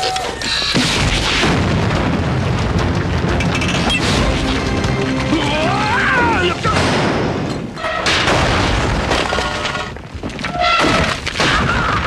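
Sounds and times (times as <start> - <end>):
cartoon explosion rumble: 0.7 - 4.5, 10.8 - 12.0
background music: 1.7 - 7.4.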